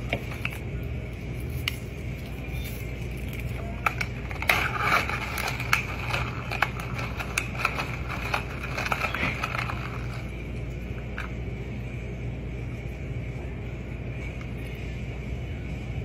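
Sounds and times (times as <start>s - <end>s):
steady low hum: 0.0s - 16.0s
ice cubes clinking in plastic cup: 3.4s - 10.3s.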